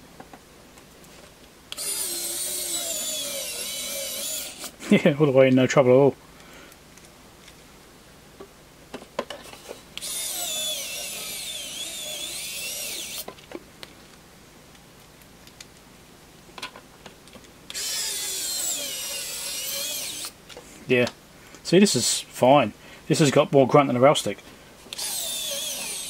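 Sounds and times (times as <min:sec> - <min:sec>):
electric screwdriver motor whining: 0:01.7 - 0:04.7, 0:10.0 - 0:13.3, 0:17.7 - 0:20.3, 0:24.9 - 0:26.0.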